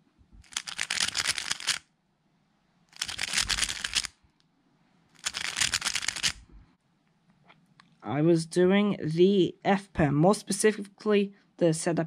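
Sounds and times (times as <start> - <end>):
puzzle cube clacking turns: 0.4 - 1.8, 2.9 - 4.2, 5.2 - 6.4.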